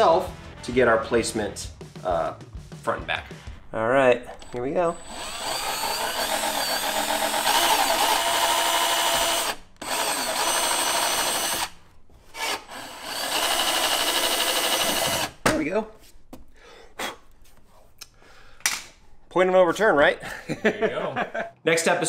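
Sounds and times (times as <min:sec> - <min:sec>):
cordless drill whining: 0:04.3 - 0:15.4.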